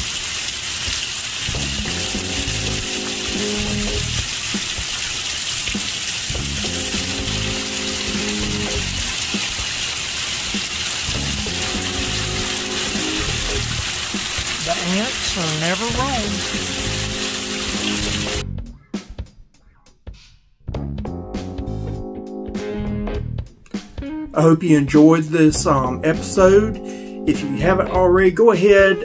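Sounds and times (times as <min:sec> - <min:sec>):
rain pouring: 0:00.0 - 0:18.4
background music chords: 0:01.5 - 0:04.3, 0:06.3 - 0:09.2, 0:11.1 - 0:29.0.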